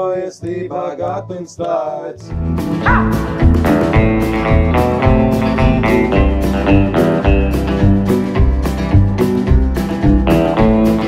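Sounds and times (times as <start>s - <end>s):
guitar over a steady beat: 2.2s - 11.0s.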